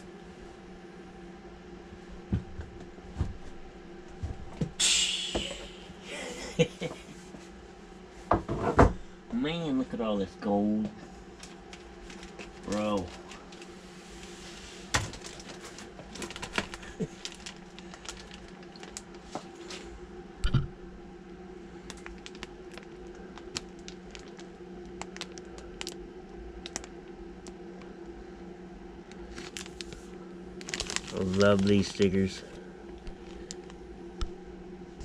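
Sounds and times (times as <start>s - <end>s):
low hum: 0.0s - 35.0s
plastic bags crinkling: 11.4s - 13.7s, 14.8s - 19.8s, 21.8s - 26.0s, 26.6s - 26.9s, 29.1s - 33.8s.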